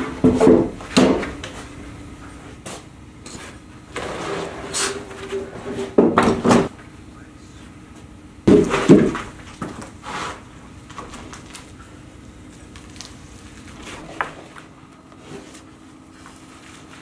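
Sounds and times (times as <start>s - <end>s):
wooden timbers knocking together: 0.0s - 1.6s, 8.5s - 9.8s.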